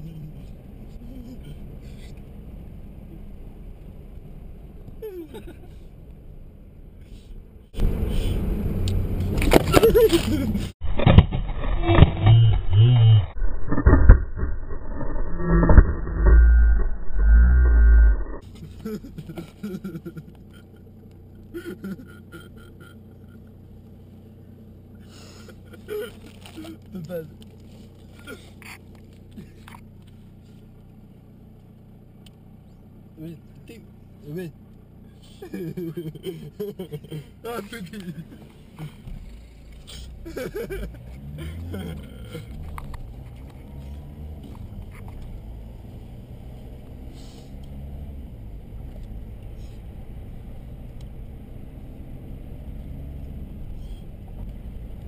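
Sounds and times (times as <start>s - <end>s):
car engine and road noise: 0.0s - 55.0s
men laughing: 5.0s - 5.9s, 9.6s - 10.8s, 18.4s - 23.6s, 25.1s - 27.3s, 28.1s - 29.8s, 35.2s - 39.1s, 39.9s - 42.7s.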